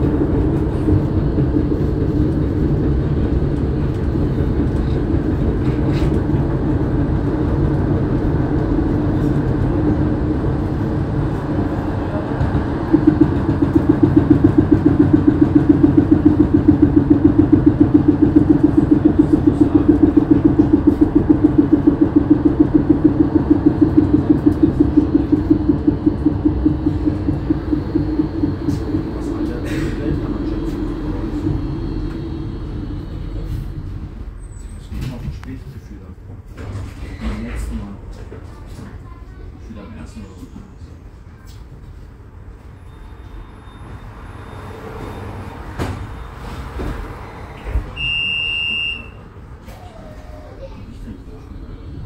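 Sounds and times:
tram equipment humming: 0.0s - 52.0s
pulsing hum: 12.5s - 34.2s.

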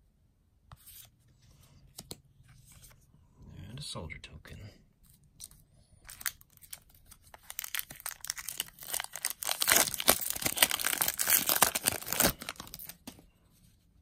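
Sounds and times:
foil wrapper crinkling and tearing: 5.4s - 13.1s.

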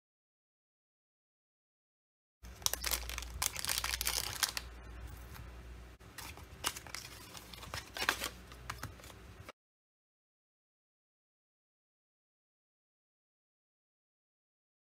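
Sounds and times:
plastic packaging crinkling: 2.5s - 5.4s, 6.1s - 9.2s.

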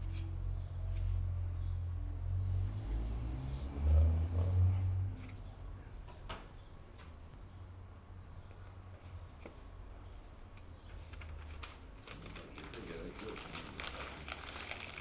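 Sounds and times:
steady low hum: 0.0s - 10.9s
wrapping paper rustling: 10.9s - 15.0s.

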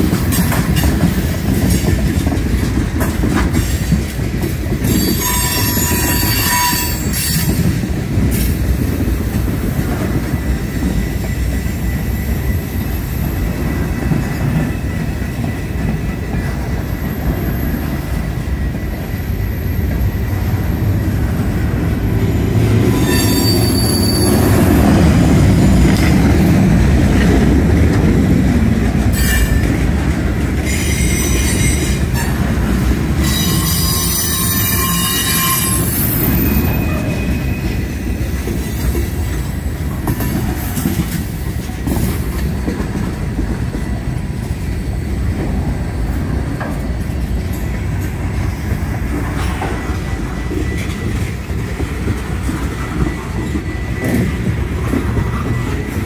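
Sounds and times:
train rumbling on rails: 0.0s - 56.0s
high-pitched wheel squeals: 4.9s - 7.6s, 22.3s - 24.8s, 33.2s - 39.0s.

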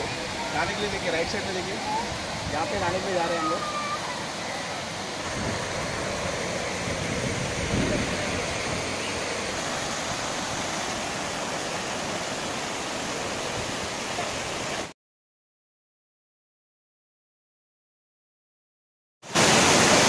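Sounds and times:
water rushing over a weir: 0.0s - 14.9s, 19.3s - 20.0s.

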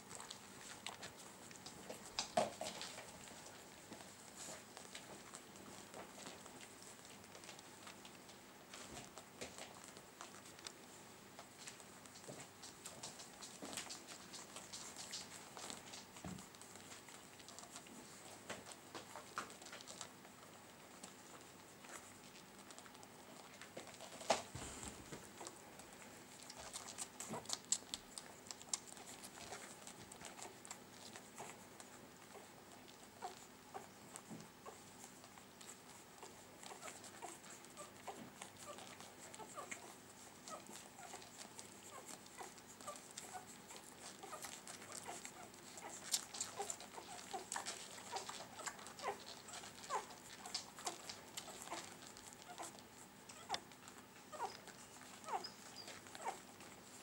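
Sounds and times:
puppies squeaking and whimpering: 34.6s - 57.0s.

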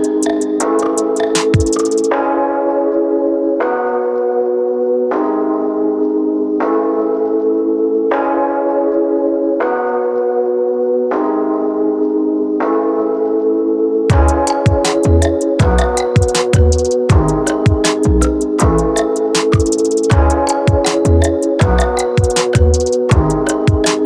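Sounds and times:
kick drum and hi-hats: 0.0s - 2.1s, 14.1s - 24.0s.

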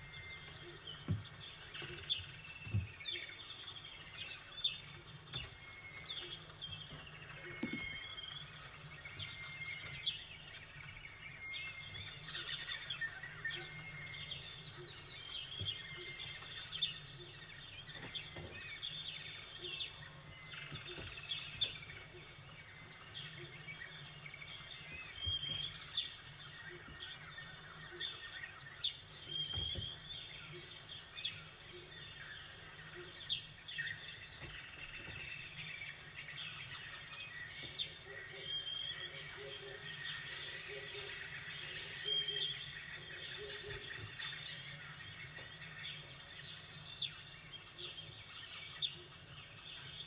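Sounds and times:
small birds chirping: 0.0s - 50.0s.

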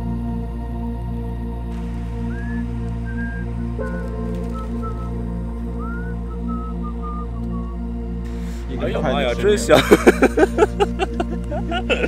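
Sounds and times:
held ambient chords: 0.0s - 12.0s
high whistle-like melody: 1.7s - 9.4s.

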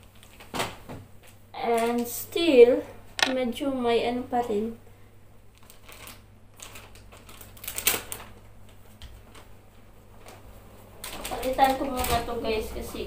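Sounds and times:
plastic packet crinkling: 5.6s - 8.4s, 11.0s - 12.2s.

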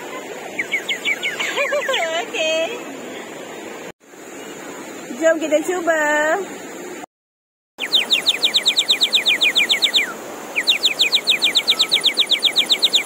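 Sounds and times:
water bird whistle warbling trills: 0.6s - 2.0s, 7.8s - 13.0s.

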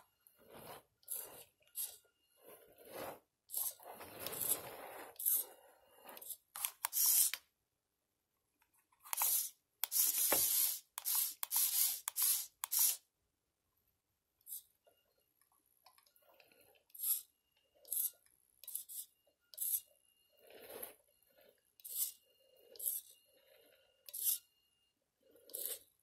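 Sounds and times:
electric motor and gears whirring: 0.0s - 7.6s, 9.0s - 13.1s, 16.3s - 26.0s.

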